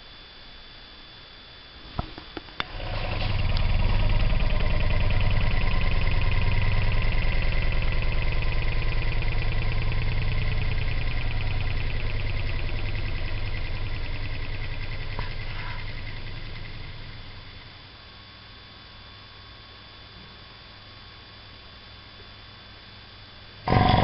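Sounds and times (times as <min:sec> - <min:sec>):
electric air compressor running: 0:02.6 - 0:17.8, 0:23.6 - 0:24.0.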